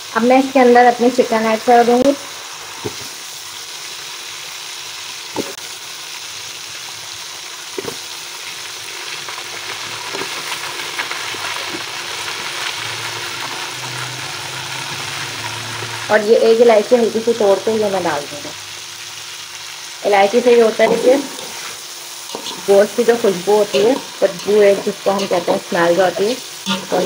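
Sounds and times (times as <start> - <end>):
chicken sizzling in hot oil: 0.0 - 27.0.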